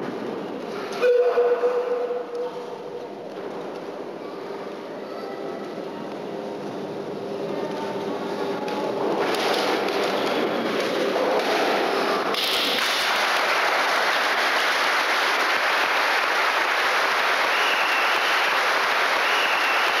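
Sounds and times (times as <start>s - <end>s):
audience applauding: 12.7s - 20.0s.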